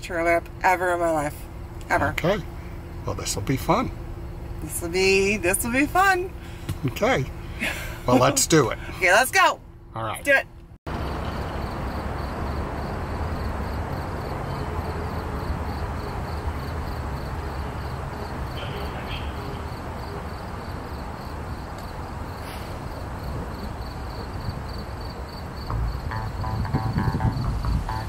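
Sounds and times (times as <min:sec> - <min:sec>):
insect chirping high: 0:10.9 - 0:28.0
steady low rumble: 0:25.6 - 0:28.0
music: 0:25.7 - 0:28.0.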